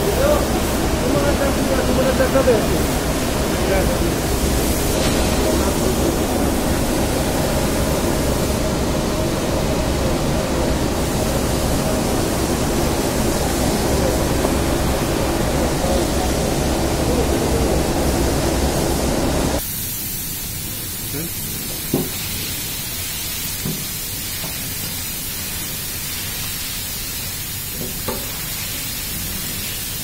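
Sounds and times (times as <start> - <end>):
steady rushing noise: 0.0 - 19.6.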